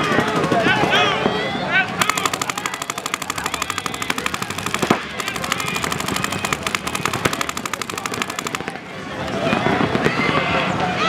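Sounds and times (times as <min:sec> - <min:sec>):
paintball markers firing rapidly: 0:02.0 - 0:09.0.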